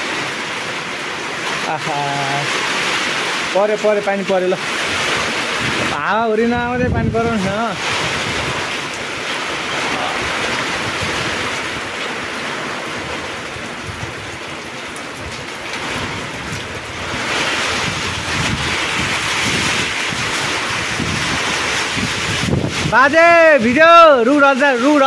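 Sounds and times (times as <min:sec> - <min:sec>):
heavy rain pouring: 0:00.0 - 0:25.0
wind buffeting microphone: 0:04.6 - 0:14.4, 0:15.2 - 0:23.9.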